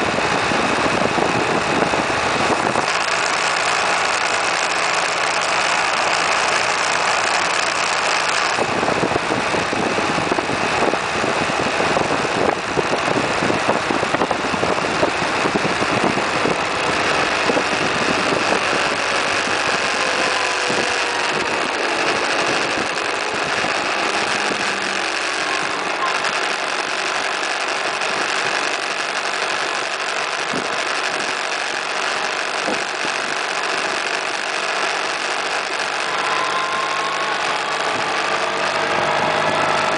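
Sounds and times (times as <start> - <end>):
scooter engine running: 0.0 - 39.9
wind and road noise: 0.0 - 39.9
deeper rumble: 5.5 - 29.0, 35.6 - 39.9.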